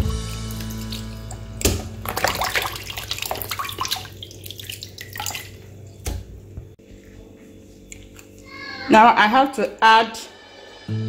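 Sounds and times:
water splashing: 0.0s - 5.8s
hands squeezing meat in water: 0.0s - 6.2s.

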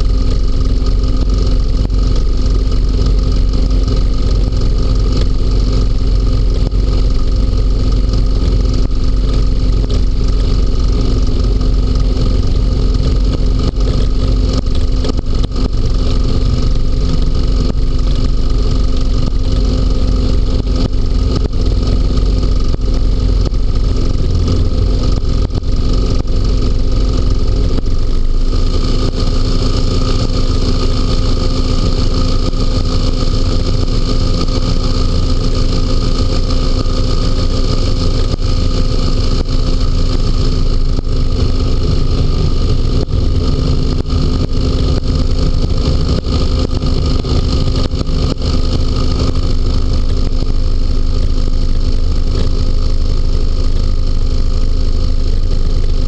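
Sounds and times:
hovercraft engine drone: 0.0s - 56.0s.

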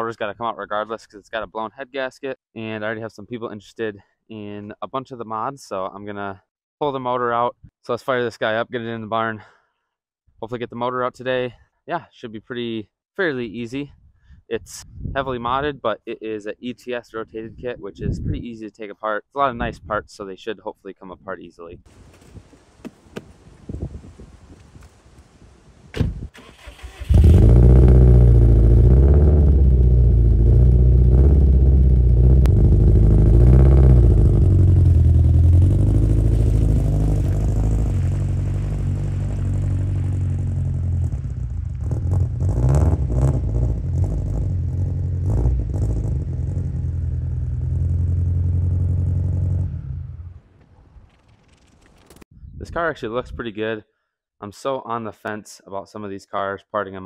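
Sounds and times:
car engine starting and idling: 26.4s - 52.1s.

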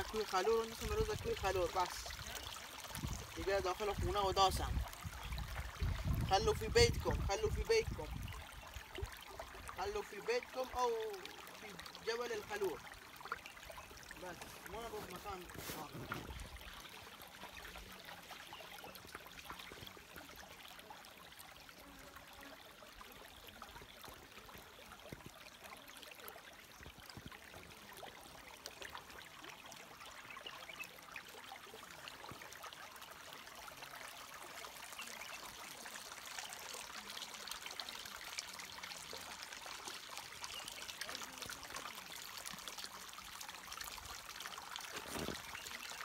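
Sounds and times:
stream babbling over stones: 0.0s - 46.0s.

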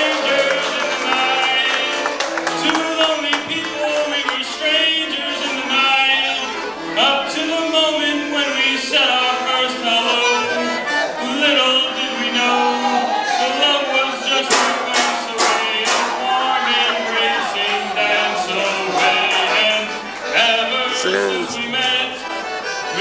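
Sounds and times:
piano accordion playing: 0.0s - 23.0s.

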